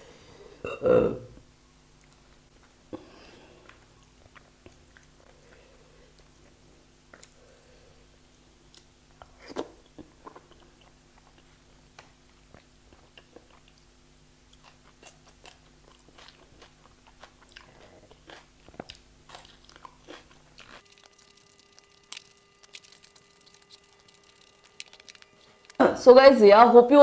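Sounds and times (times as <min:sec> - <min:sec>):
person chewing and crunching food: 0:02.0 - 0:07.9, 0:08.7 - 0:25.9
wet mouth clicks and smacks: 0:20.8 - 0:25.8.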